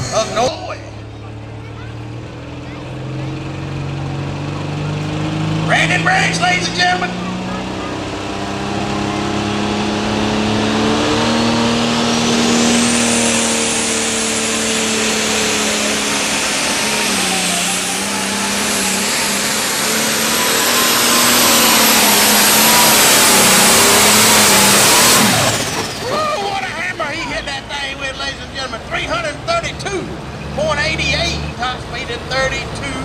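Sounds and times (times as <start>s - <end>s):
diesel tractor engine under load: 0.0s - 33.0s
turbo whine: 5.6s - 26.1s.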